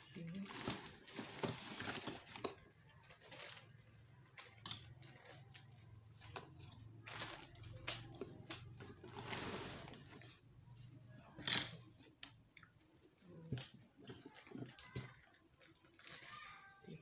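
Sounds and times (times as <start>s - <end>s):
cardboard rustling: 0.3s - 3.7s.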